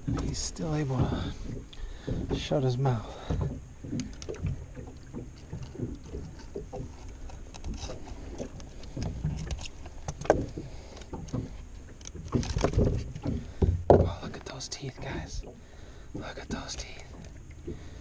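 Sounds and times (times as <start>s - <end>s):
clicks and knocks in boat: 0.0s - 18.0s.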